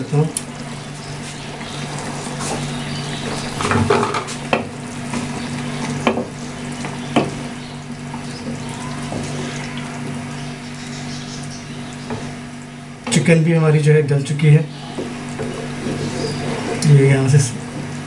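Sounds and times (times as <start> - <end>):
curry sizzling: 0.0 - 13.2, 14.6 - 18.0
spatula knocking against pan: 6.0 - 7.4
wooden spatula scraping pan: 14.8 - 16.9.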